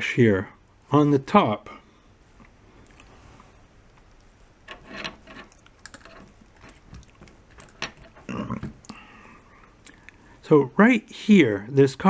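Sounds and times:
handling noise: 4.0 - 8.8.

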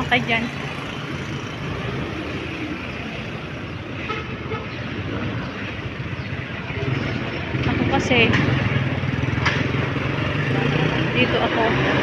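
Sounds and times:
vehicle engines running: 0.0 - 12.0
motorcycle passing close by: 6.8 - 12.0.

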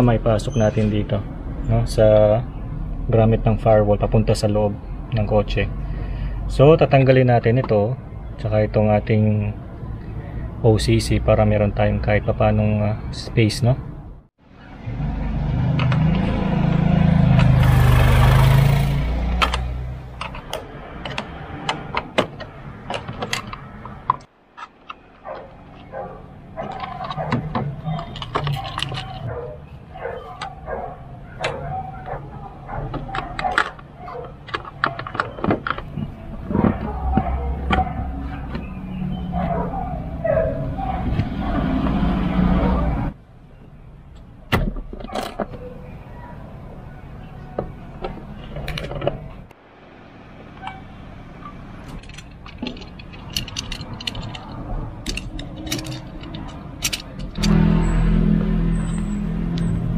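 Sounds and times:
engine parts clicking and rattling: 15.8 - 42.0, 44.1 - 46.3, 47.2 - 49.6, 50.4 - 59.9
plastic and metal clicks and rattles: 26.6 - 29.3, 32.9 - 36.2, 51.8 - 57.6.

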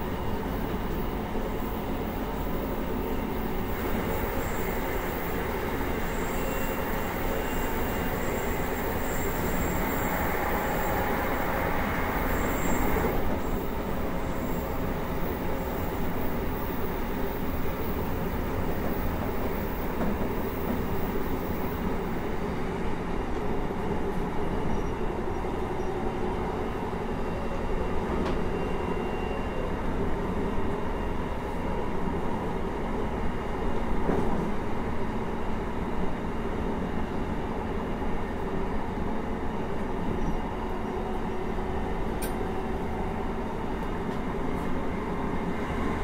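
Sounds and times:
hissing train noise: 0.0 - 23.4
train wheels rumbling on rail: 0.0 - 46.0.

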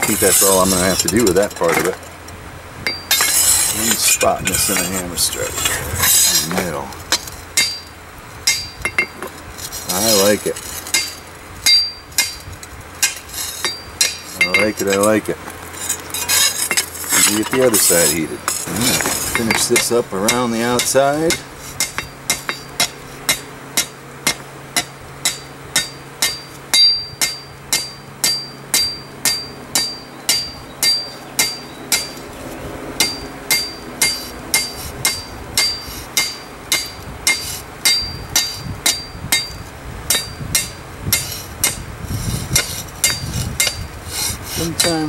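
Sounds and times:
hammer striking steel plate: 6.1 - 7.9, 8.5 - 9.3, 10.9 - 15.1, 19.3 - 32.2, 33.0 - 41.8.

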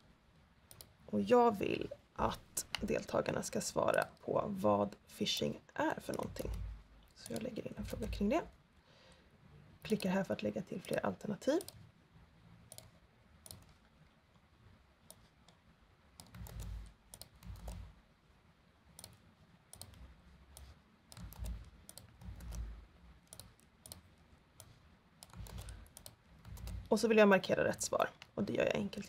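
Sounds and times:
keyboard key clicks: 21.1 - 22.7
dull low thumps: 21.2 - 23.0, 25.3 - 26.9.

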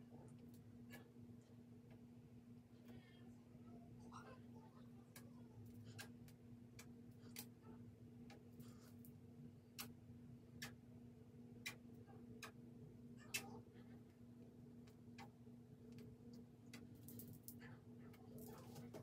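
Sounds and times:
faint clicks and taps: 5.0 - 7.6, 14.1 - 19.0.

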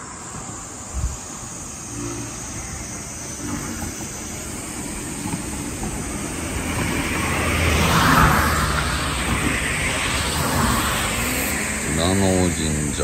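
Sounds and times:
car passing by: 4.6 - 13.0.

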